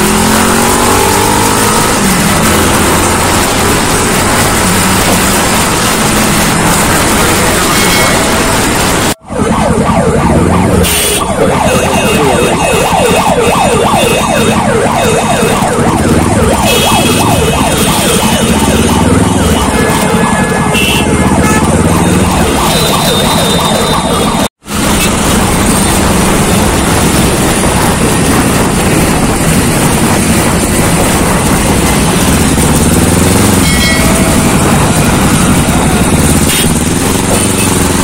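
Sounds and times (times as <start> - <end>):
motorcycle engine: 0.0 - 38.0
traffic noise: 0.0 - 38.0
siren yelping: 6.5 - 24.5, 30.2 - 38.0.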